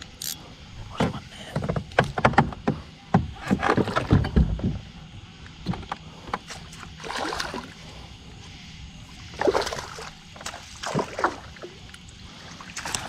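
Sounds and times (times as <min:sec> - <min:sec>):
water splashing: 0:07.0 - 0:07.8, 0:09.1 - 0:13.0.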